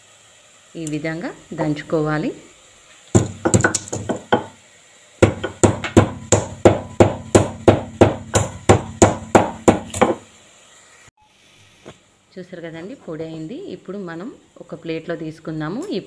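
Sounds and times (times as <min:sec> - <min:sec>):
pestle pounding in wooden mortar: 0:03.2 - 0:04.5, 0:05.2 - 0:10.2.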